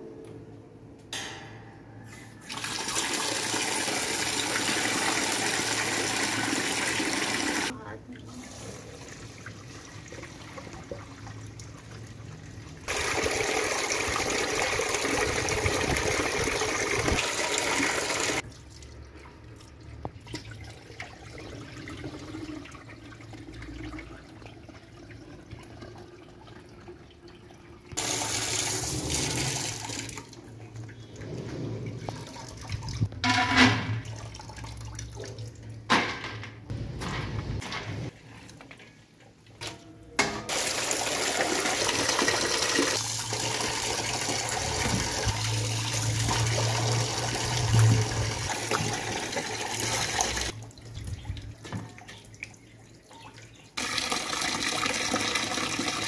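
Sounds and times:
water rushing in a steel tray: 40.5 - 50.6.

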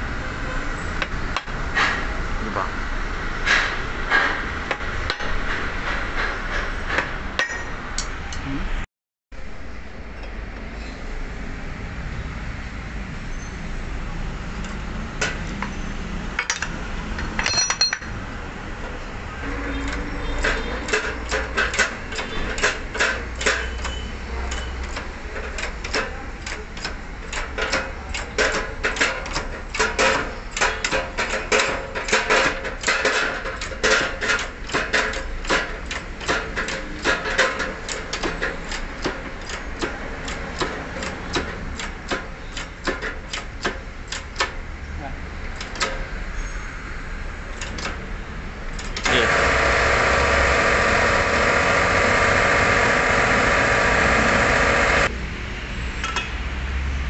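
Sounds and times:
hammer striking steel pipe: 7.0 - 8.1.

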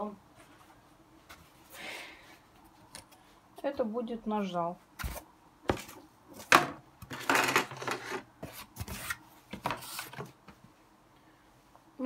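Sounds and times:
cardboard scraping rustles: 7.1 - 10.4.

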